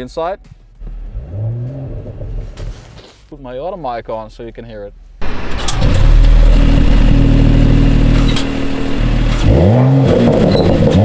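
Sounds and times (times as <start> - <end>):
car exhaust revving: 0.8 - 2.6, 5.2 - 11.0.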